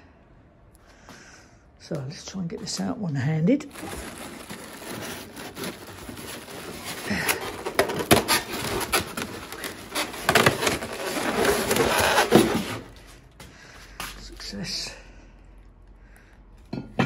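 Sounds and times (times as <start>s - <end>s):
foam and plastic rustling: 2.2s - 13.4s.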